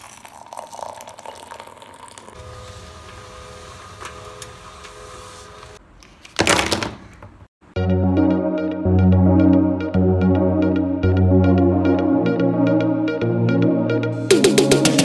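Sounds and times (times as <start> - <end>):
milk pouring into a mug: 0.0 - 2.4
printer humming: 2.4 - 5.8
printer tones: 2.4 - 5.8.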